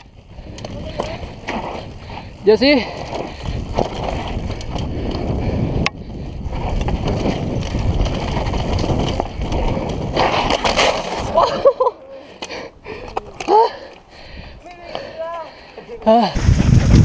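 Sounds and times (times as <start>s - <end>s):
wind on microphone: 0.0s - 10.6s, 16.2s - 17.0s
bike tyre and rattle noise: 0.0s - 17.0s.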